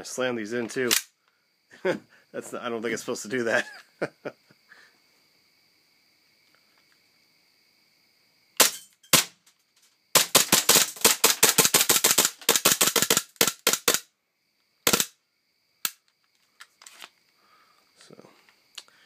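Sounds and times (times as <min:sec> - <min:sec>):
airsoft pistol shots: 0:08.6 - 0:09.4, 0:10.2 - 0:14.0, 0:14.9 - 0:15.1.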